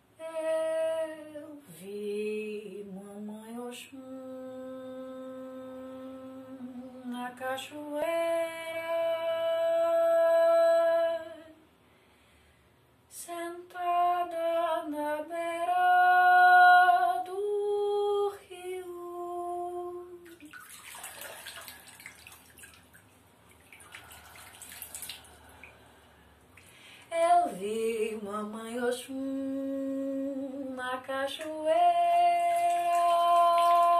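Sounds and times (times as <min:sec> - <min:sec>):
woman singing unaccompanied: 0:00.0 - 0:11.6, 0:13.1 - 0:20.5, 0:27.0 - 0:33.9
water splashing and trickling: 0:20.2 - 0:26.8, 0:31.4 - 0:33.9.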